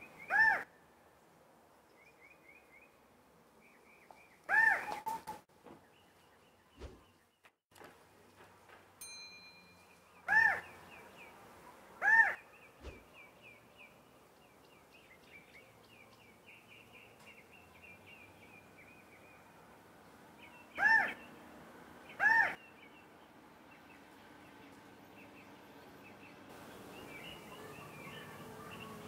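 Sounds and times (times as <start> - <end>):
quail calls: 4.5 - 5.4, 10.3 - 10.7, 20.8 - 21.2, 22.2 - 22.6
faint high chirping: 26.6 - 29.0.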